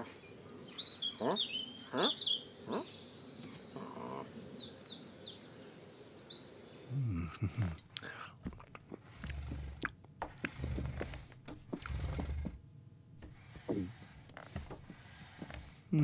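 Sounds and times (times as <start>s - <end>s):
birds chirping and trilling: 0.0s - 7.0s
short low vocal sound: 6.9s - 7.9s.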